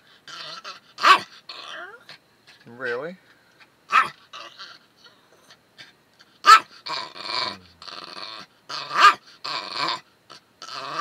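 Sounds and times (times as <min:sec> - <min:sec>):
dog yapping: 0:00.3 - 0:02.1, 0:03.9 - 0:04.8, 0:06.4 - 0:07.6, 0:08.7 - 0:10.0.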